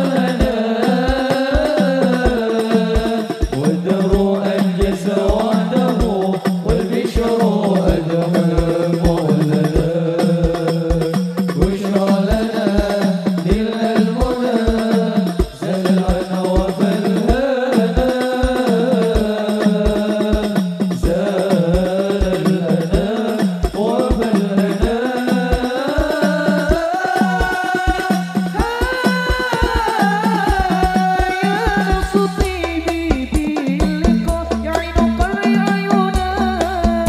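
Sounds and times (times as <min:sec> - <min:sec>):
frame drums: 0:00.0 - 0:37.0
men singing together: 0:00.0 - 0:37.0
bass drum beating: 0:32.0 - 0:37.0.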